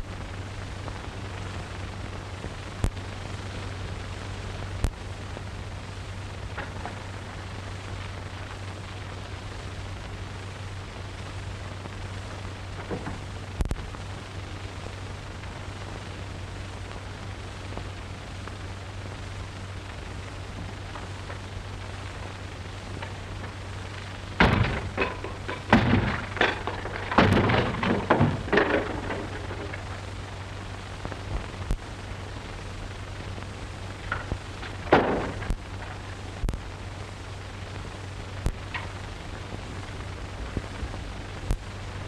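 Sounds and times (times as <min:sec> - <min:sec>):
film soundtrack hiss and hum: 0:00.0 - 0:42.0
thumps and clattering knocks: 0:12.8 - 0:13.3, 0:24.4 - 0:30.0, 0:34.1 - 0:36.0.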